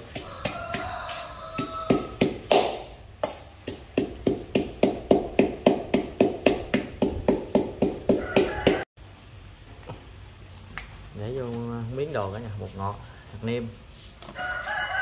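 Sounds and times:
pestle pounding in metal bowl: 0.0s - 8.8s.

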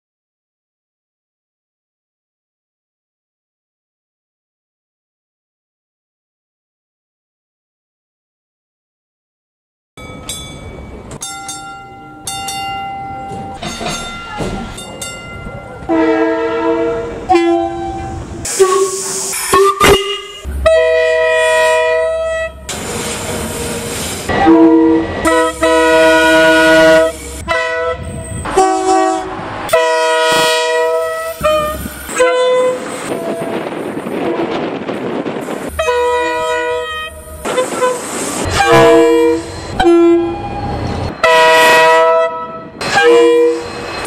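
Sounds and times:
locomotive air horn blasts: 15.9s - 22.6s, 24.3s - 33.6s, 35.8s - 43.7s.

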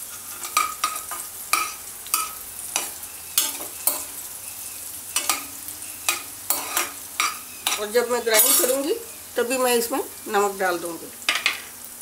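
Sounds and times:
metal ladle scraping a pan: 0.0s - 4.3s, 5.2s - 9.0s
faint oil sizzle: 0.0s - 12.0s.

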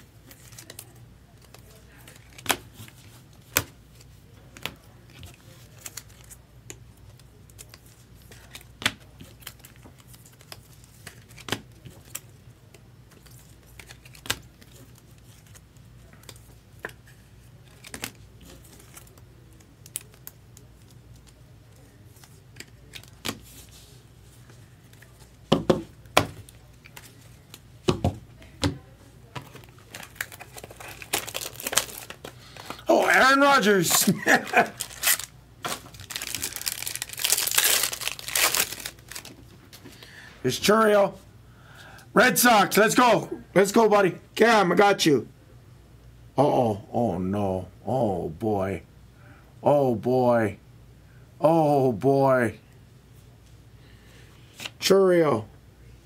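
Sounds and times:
card packaging clicks and crinkling: 0.3s - 17.0s, 17.6s - 23.5s, 29.4s - 32.9s, 33.6s - 39.9s.

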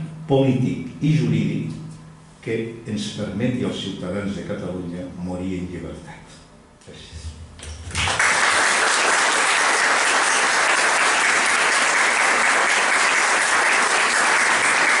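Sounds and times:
audience applauding: 7.9s - 15.0s.

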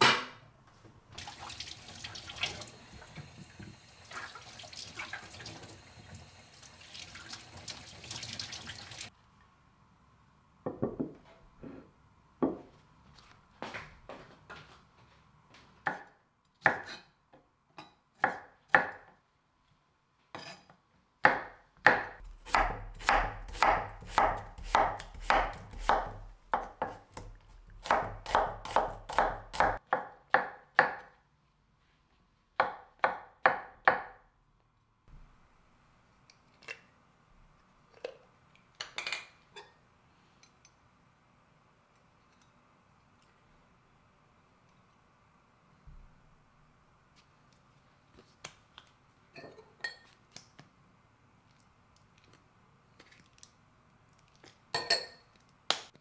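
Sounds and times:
knife slicing vegetables on wood: 15.9s - 17.1s, 21.2s - 31.1s.

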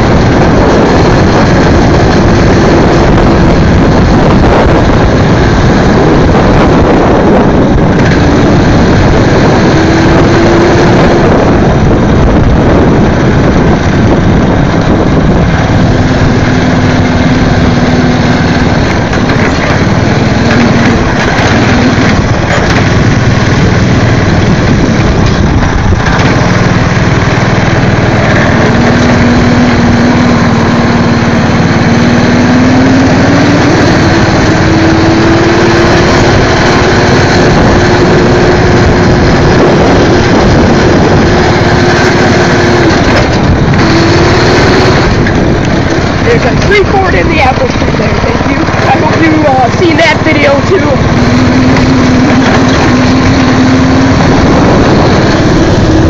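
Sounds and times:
go-kart engine revving: 0.0s - 56.0s
noisy rush: 0.0s - 56.0s.

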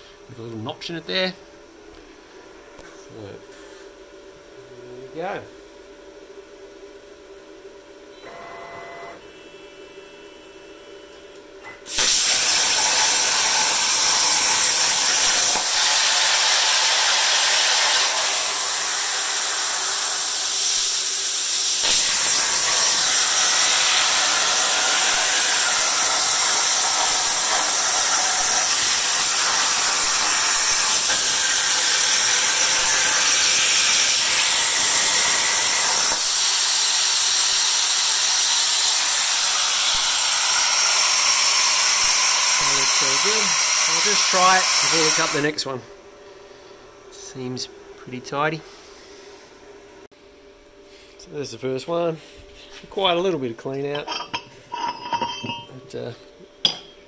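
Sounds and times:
plasma cutter hissing: 11.9s - 45.6s.

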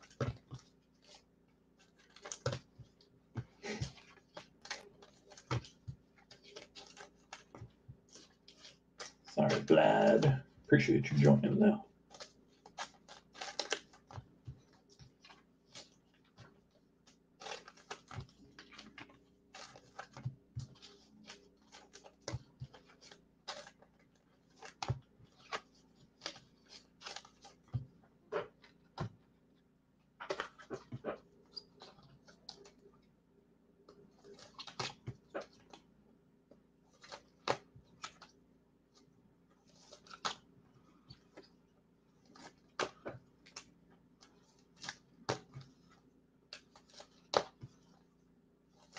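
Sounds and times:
trading cards being handled: 0.0s - 29.2s.

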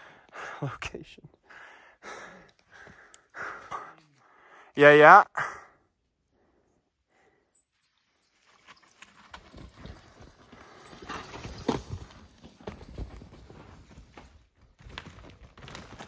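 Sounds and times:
bike rattling over rock: 8.5s - 16.0s
thin high squeal: 10.8s - 12.0s.

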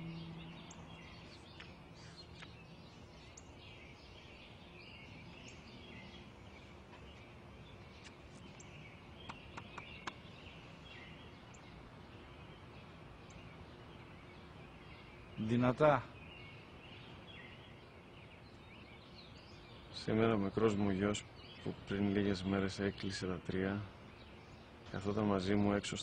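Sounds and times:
low held music tone: 0.0s - 18.6s
birds chirping: 0.0s - 26.0s.

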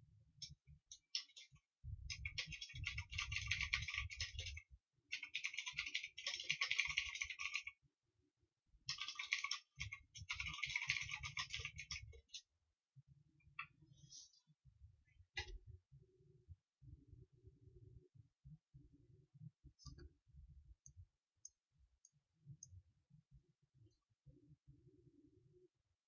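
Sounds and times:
keyboard typing: 0.9s - 7.7s, 8.9s - 12.4s.

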